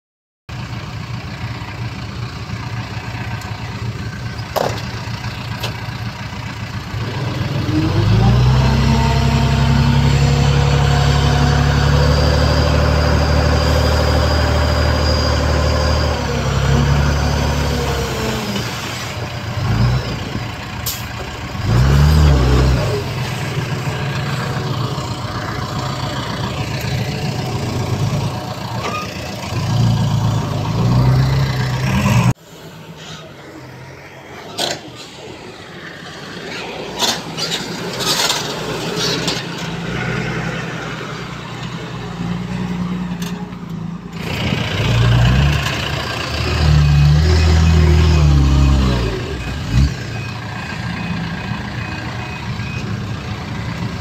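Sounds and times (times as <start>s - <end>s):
heavy diesel engine revving: 1.2s - 32.4s, 44.1s - 54.0s.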